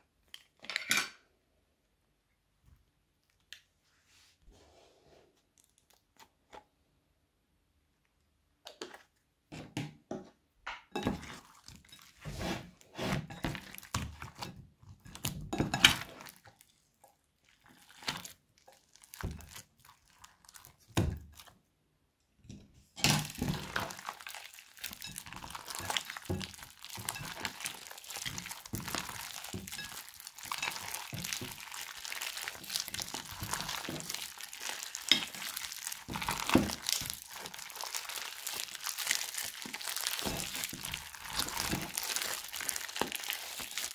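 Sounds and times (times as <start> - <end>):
crackling squelching kneading: 11.0 - 21.7, 23.1 - 43.9
hands squishing slime: 13.2 - 21.6, 23.2 - 43.9.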